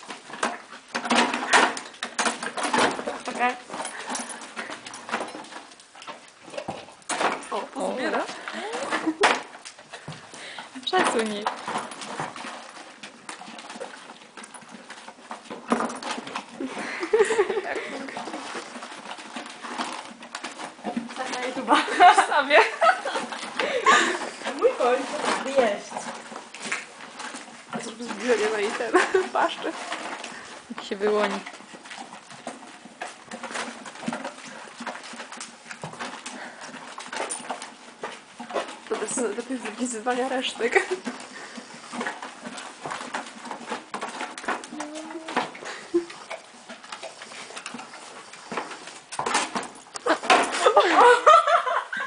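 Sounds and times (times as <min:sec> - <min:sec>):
horse munching feed: 0:00.0 - 0:52.0
bucket knocking: 0:14.8 - 0:36.6.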